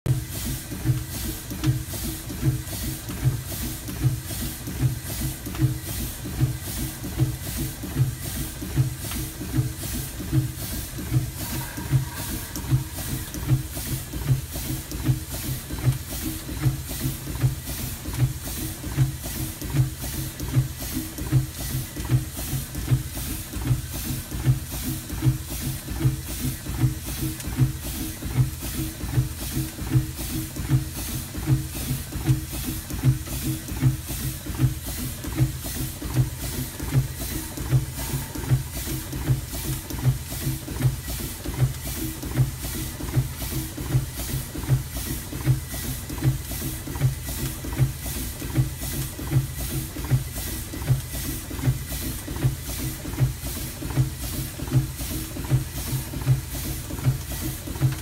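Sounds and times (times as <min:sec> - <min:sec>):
steam engine exhaust beat: 0:00.1 - 0:58.0
steam hissing: 0:07.5 - 0:15.6, 0:35.7 - 0:45.2.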